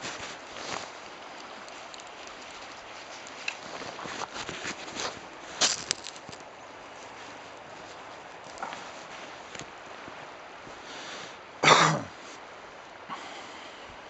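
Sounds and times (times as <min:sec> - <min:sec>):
footsteps crunching on gravel: 0:00.0 - 0:10.8
background hiss: 0:00.0 - 0:14.0.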